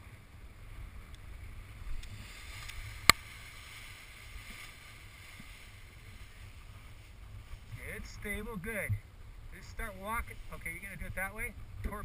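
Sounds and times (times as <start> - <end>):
fabric wing rustling: 2.1 - 7.9.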